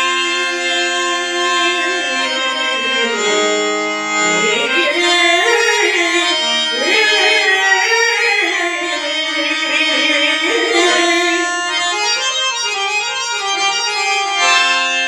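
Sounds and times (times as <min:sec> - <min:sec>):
harmonium holding notes: 0:00.0 - 0:15.0
man singing melismatic phrases: 0:04.2 - 0:11.8.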